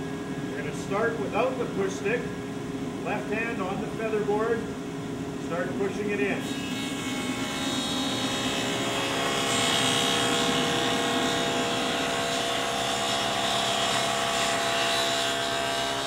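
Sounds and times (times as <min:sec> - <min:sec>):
table saw cutting wood: 0:06.4 - 0:16.0.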